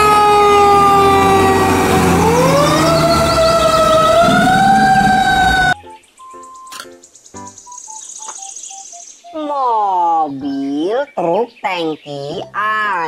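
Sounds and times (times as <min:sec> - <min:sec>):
fire truck siren wailing: 0:00.0 - 0:05.8
truck engine rumble: 0:00.0 - 0:05.8.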